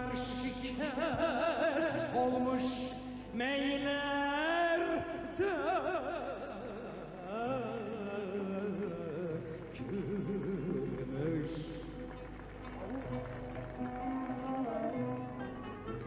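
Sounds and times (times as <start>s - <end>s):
ornamented folk vocal melody: 0.0s - 16.0s
held accompaniment: 7.2s - 16.0s.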